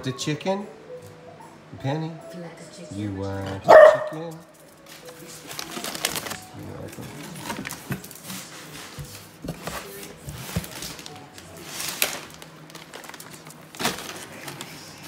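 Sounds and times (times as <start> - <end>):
packaging rustling and crinkling: 4.8 - 15.0.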